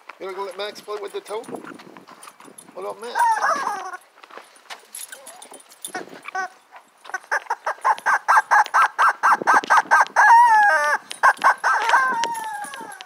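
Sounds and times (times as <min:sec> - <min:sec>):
rubber dog toy squeaking: 0:03.1 - 0:04.0, 0:05.9 - 0:13.0.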